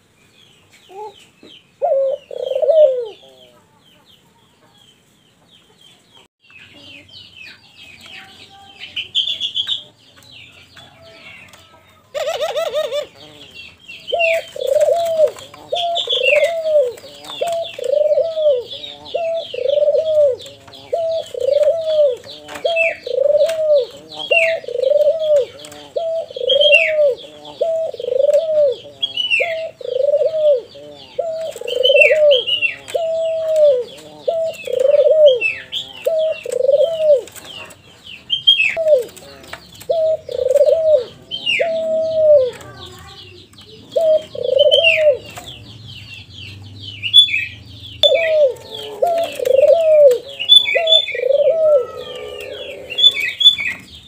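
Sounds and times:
dove cooing: 0.9 - 3.7, 10.9 - 53.9.

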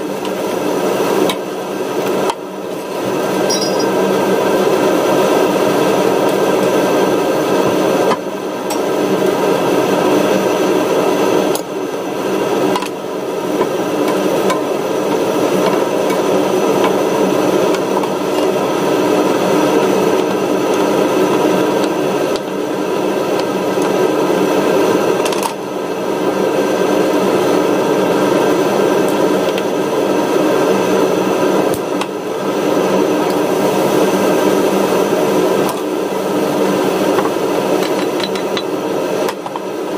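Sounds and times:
mechanical hum with whine: 0.0 - 39.9
vegetables sizzling in pan: 31.7 - 38.1.

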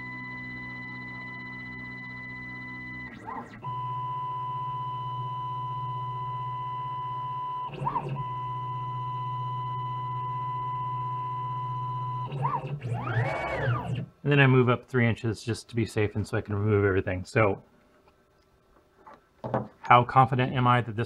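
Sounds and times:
machine motors whining: 0.0 - 14.1.

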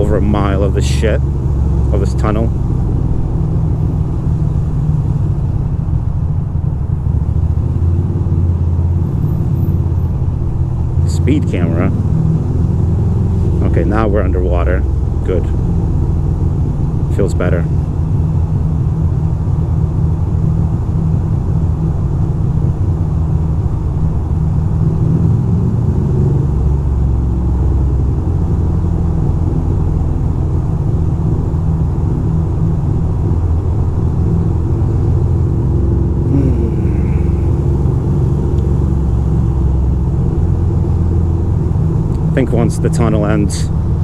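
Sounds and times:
traffic rumble: 0.0 - 44.0
motorcycle engine running: 28.2 - 44.0.

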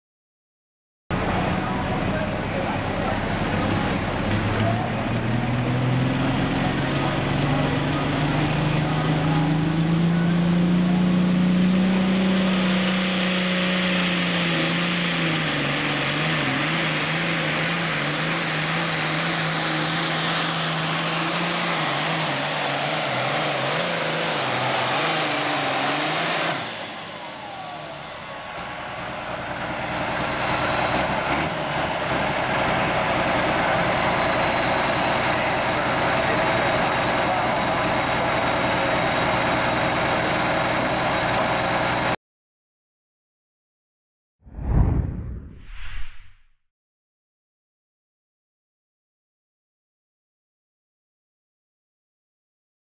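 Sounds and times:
diesel tractor engine under load: 1.1 - 42.2.

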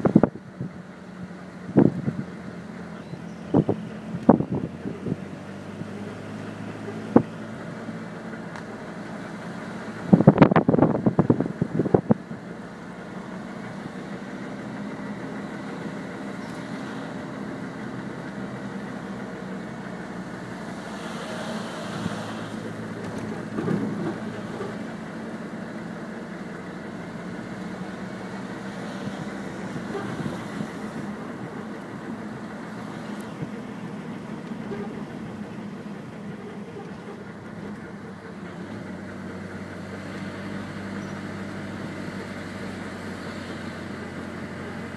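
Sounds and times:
car engine hum: 0.0 - 44.9
road noise: 0.0 - 44.9
hiss: 20.6 - 22.7.

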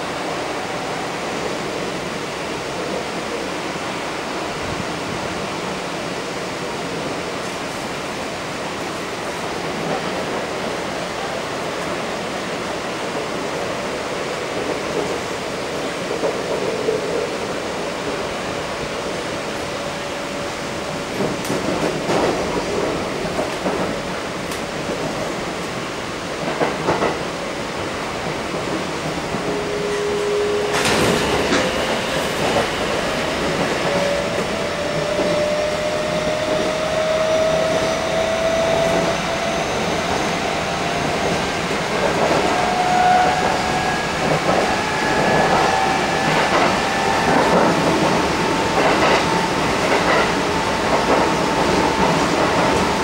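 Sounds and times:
train running rumble: 14.5 - 53.0
train wheels clicking over rails: 21.0 - 25.8, 26.4 - 27.4, 28.2 - 53.0.

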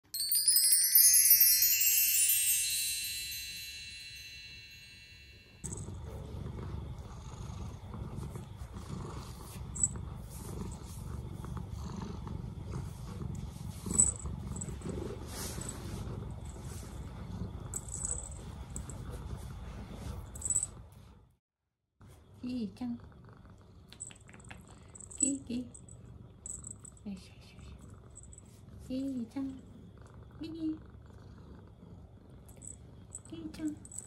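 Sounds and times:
chime tones: 0.0 - 5.7
cat purring: 5.6 - 21.3, 22.6 - 34.0.

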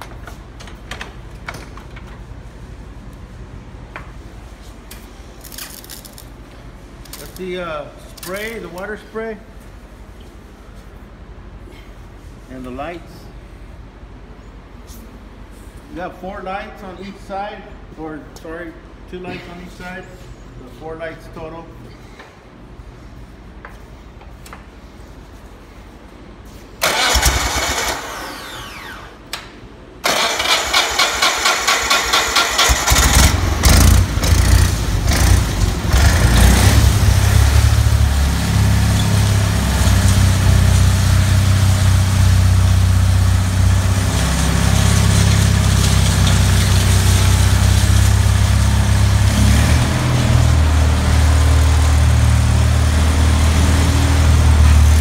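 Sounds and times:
gasoline engine cranking: 26.8 - 28.8, 30.0 - 36.3
engine running: 26.8 - 29.1, 30.0 - 55.0.

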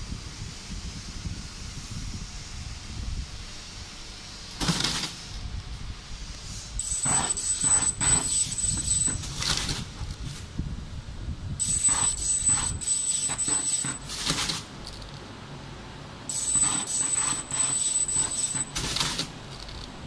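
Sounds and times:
rough mechanical hiss: 3.6 - 5.4, 6.0 - 10.5, 16.3 - 19.7
machine high-pitched whine: 6.1 - 10.1, 11.6 - 20.0.

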